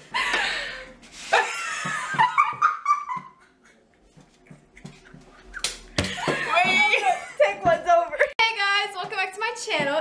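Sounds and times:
women laughing: 0:00.1 - 0:04.2, 0:05.1 - 0:08.4.

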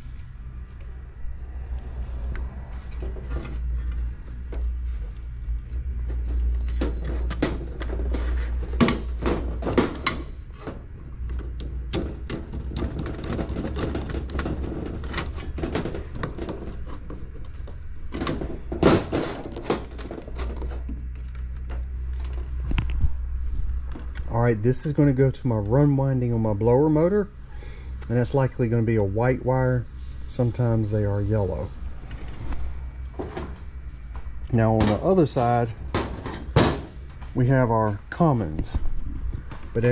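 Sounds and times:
steady low hum: 0:00.0 - 0:39.9
clicks taps and knocks of wires: 0:04.4 - 0:23.1.

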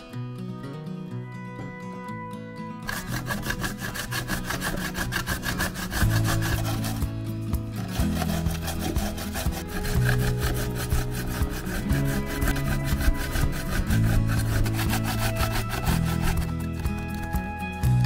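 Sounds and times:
background music with low bass: 0:00.0 - 0:18.0
zucchini grated on a metal grater: 0:02.8 - 0:07.1, 0:07.8 - 0:17.3.

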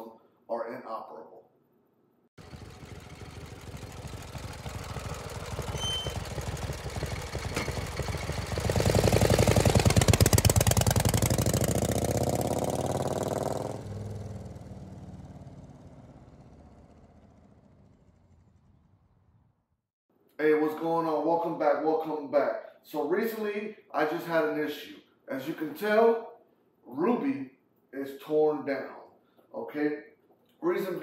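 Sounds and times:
fast-pulsing engine revving: 0:02.4 - 0:19.2.

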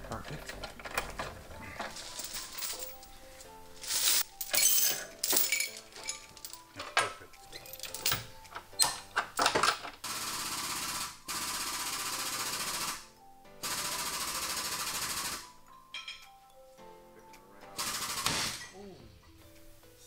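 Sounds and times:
heavy chains clanking: 0:00.0 - 0:10.0.

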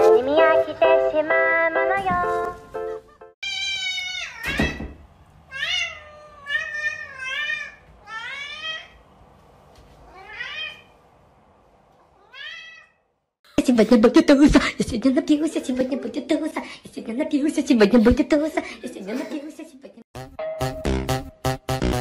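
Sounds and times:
cat meowing: 0:03.4 - 0:04.8, 0:05.5 - 0:09.0, 0:10.0 - 0:10.9, 0:12.1 - 0:13.1.

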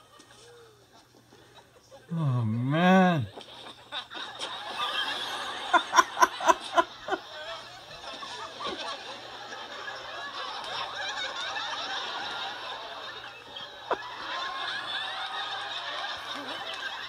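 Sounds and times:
man's wavering martial-arts cry: 0:02.1 - 0:03.3
studio audience laughter: 0:03.4 - 0:17.0.

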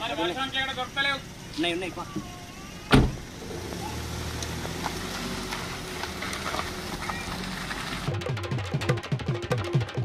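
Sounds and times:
car engine running: 0:00.0 - 0:09.8
sharp thump: 0:02.9 - 0:03.2.

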